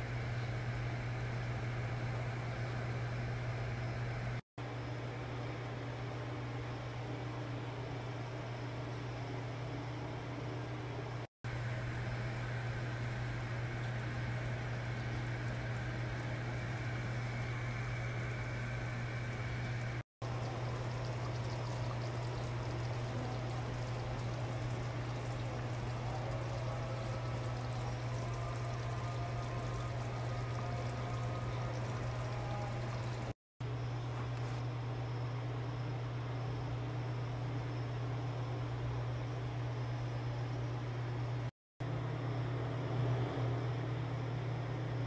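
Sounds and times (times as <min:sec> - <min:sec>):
constant low hum: 0:00.0 - 0:45.0
stew bubbling: 0:11.5 - 0:33.4.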